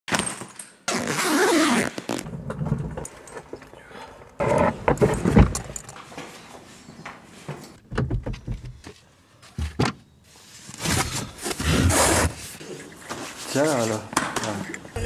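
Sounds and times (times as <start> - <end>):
luggage scraping: 10.6 - 14.0.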